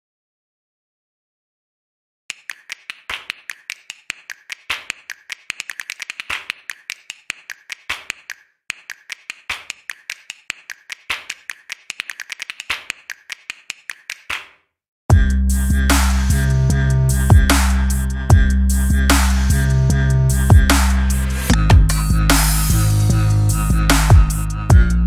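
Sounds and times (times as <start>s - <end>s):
sharp percussive clicks and taps: 2.3s - 14.6s.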